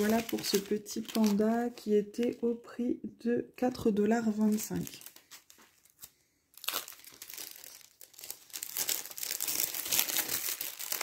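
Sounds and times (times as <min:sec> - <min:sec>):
plastic packaging crinkling: 0:00.0 - 0:02.4, 0:04.2 - 0:11.0.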